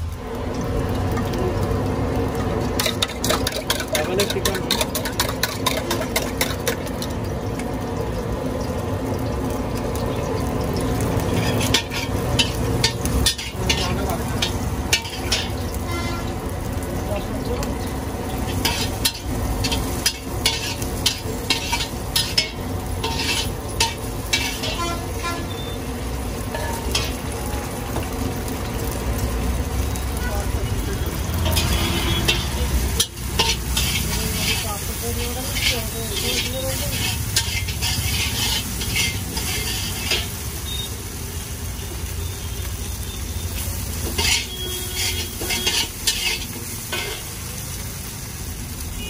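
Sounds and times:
chicken sizzling in hot oil: 0.0s - 49.0s
metal spatula scraping a wok: 2.8s - 6.8s, 11.2s - 16.4s, 18.3s - 27.3s, 31.3s - 40.5s, 43.6s - 47.4s.

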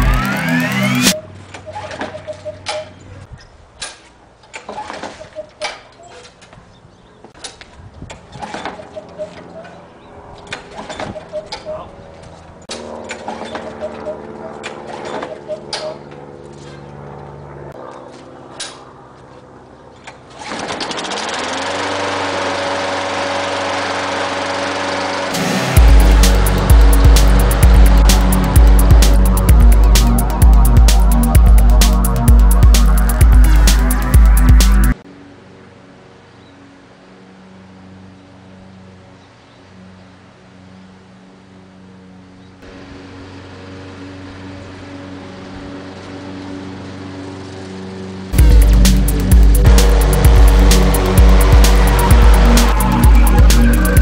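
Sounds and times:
lawn mower engine starting: 12.6s - 15.8s, 20.0s - 34.1s, 42.7s - 54.0s.

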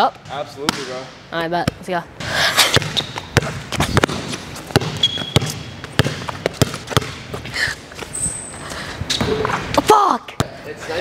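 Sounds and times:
sneaker squeaks: 2.6s - 9.7s
basketball bouncing on wood floor: 2.7s - 7.4s.

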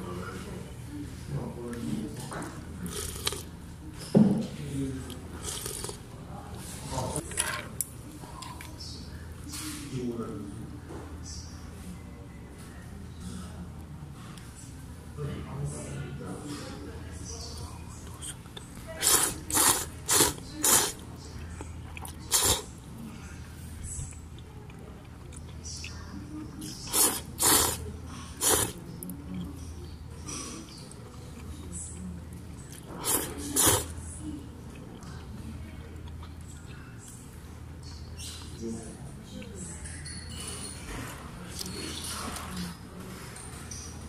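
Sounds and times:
hissy noodle slurps: 5.4s - 6.0s, 19.0s - 21.0s, 22.3s - 22.7s, 26.8s - 27.8s, 28.4s - 28.8s, 33.0s - 34.0s.

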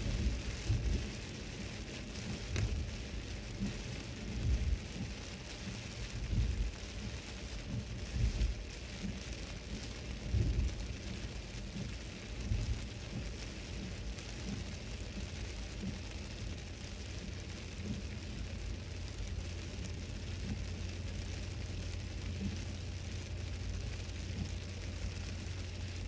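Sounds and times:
low rumbling thump: 0.0s - 1.2s, 2.2s - 2.9s, 6.2s - 6.8s, 7.7s - 10.8s
heavy rain on car: 0.0s - 26.0s.

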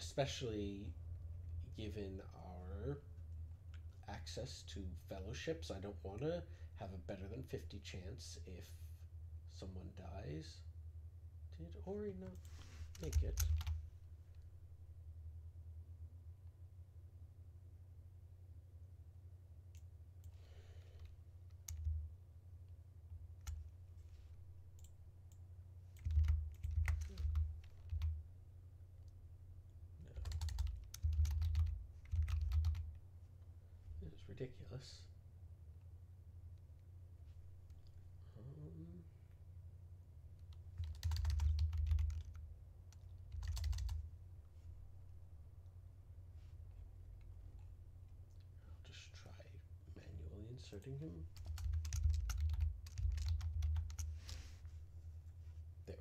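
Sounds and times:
steady low hum: 0.0s - 56.0s
keyboard typing: 12.4s - 13.8s, 21.0s - 22.0s, 26.0s - 28.2s, 30.1s - 32.9s, 40.4s - 44.0s, 51.3s - 54.2s.

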